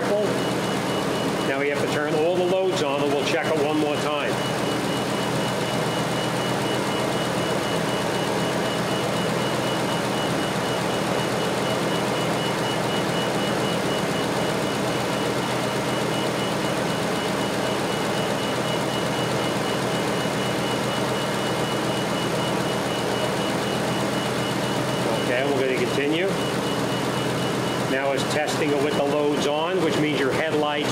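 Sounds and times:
car engine idling: 0.0s - 29.3s.

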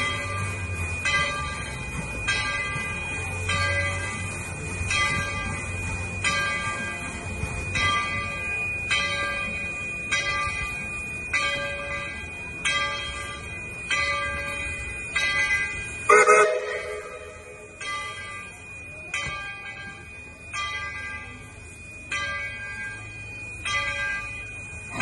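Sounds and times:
locomotive bell clanging: 0.0s - 25.0s.

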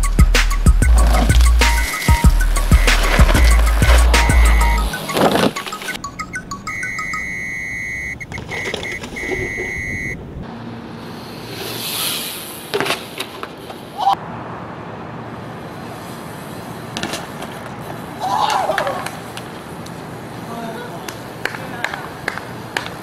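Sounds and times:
high-pitched electronic beep: 6.0s - 10.2s.

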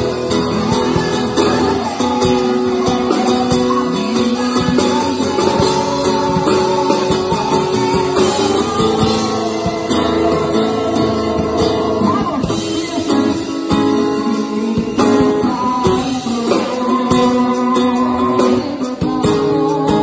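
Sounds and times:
acoustic guitar strumming: 0.0s - 20.0s
singing through pa system: 0.0s - 20.0s.

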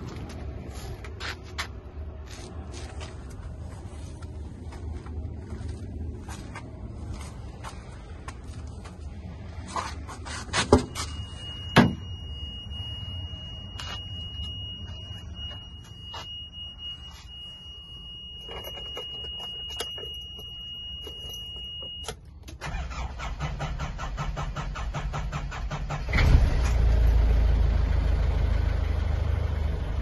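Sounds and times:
high-pitched electronic warning tone: 10.8s - 22.1s
diesel engine starter turning over: 22.5s - 27.1s.

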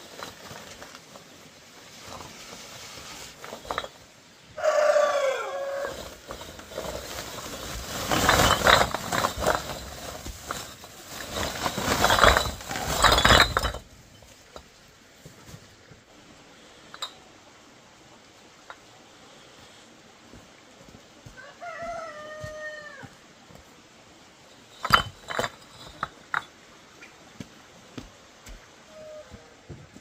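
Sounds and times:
knocking and clattering of hard objects: 3.4s - 4.0s, 5.9s - 15.6s, 24.7s - 26.6s
rooster crowing: 4.6s - 6.0s, 21.3s - 23.2s.

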